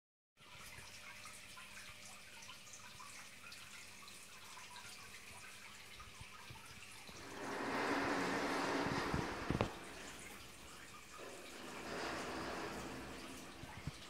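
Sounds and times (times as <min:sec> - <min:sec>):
water trickling and dripping: 0:00.4 - 0:14.0
fountain splashing: 0:07.1 - 0:14.0.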